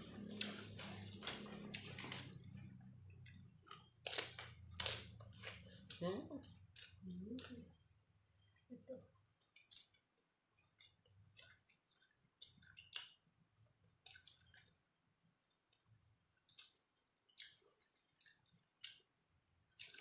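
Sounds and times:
open-mouthed chewing and lip-smacking: 9.4 - 20.0.

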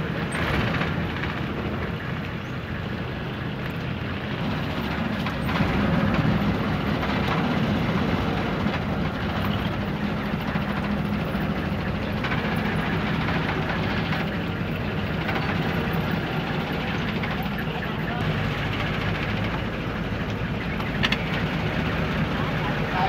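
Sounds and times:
boat engine low drone: 0.0 - 23.0.

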